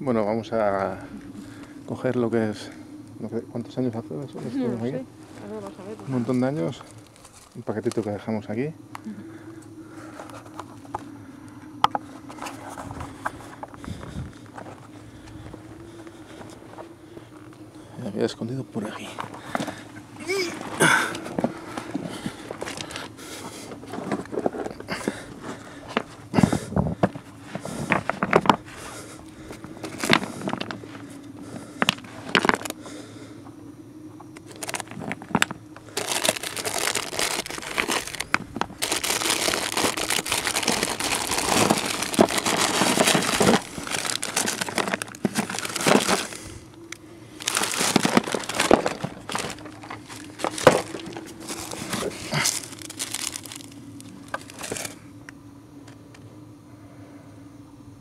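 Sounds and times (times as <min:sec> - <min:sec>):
plastic bag crinkling: 0:32.0 - 0:32.8, 0:34.4 - 0:46.5, 0:47.3 - 0:55.0.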